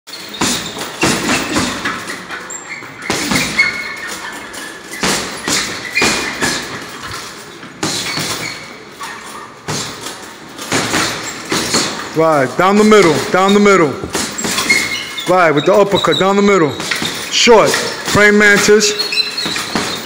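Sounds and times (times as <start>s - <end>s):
boxing gloves thudding on heavy bag: 0.4s - 2.0s, 3.0s - 3.7s, 5.0s - 6.9s, 10.7s - 12.1s, 14.0s - 14.9s.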